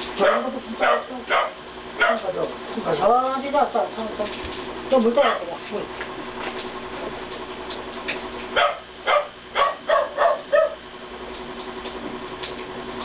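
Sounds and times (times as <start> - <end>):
dog barking: 0.2 - 2.3, 5.2 - 5.5, 8.6 - 10.8.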